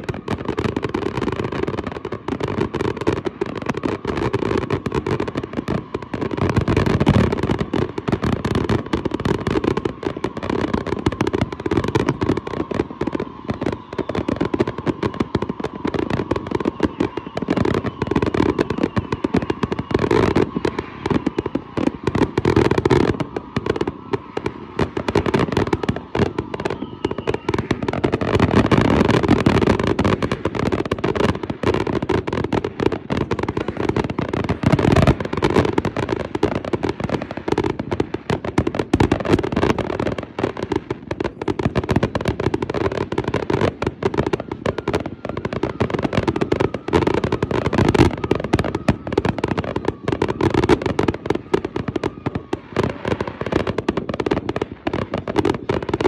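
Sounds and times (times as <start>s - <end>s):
fireworks bangs: 0.0s - 56.0s.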